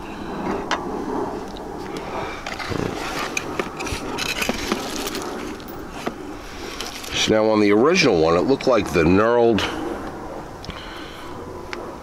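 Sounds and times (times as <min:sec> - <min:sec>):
hand rummaging in cardboard box: 0:02.5 - 0:06.1.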